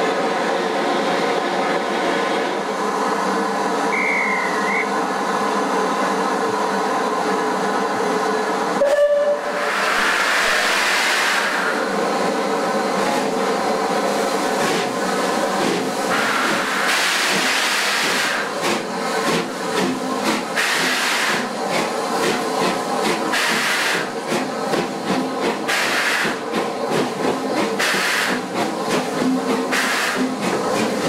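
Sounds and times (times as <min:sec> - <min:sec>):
steam locomotive humming: 0:00.0 - 0:31.0
short high whistle: 0:03.9 - 0:05.0
steam hiss: 0:09.4 - 0:12.2, 0:12.9 - 0:31.0.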